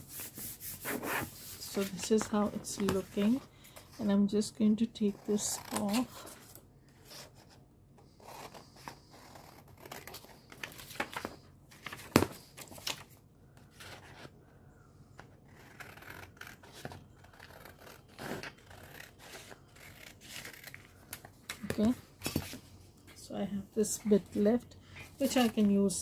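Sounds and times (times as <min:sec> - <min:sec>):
paper rustling: 0:09.8 - 0:13.2.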